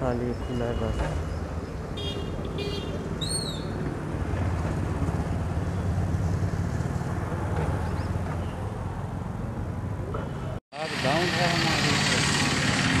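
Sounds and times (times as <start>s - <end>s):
bird chirp: 0.0s - 3.8s, 7.8s - 8.7s
motorcycles passing: 1.1s - 13.0s.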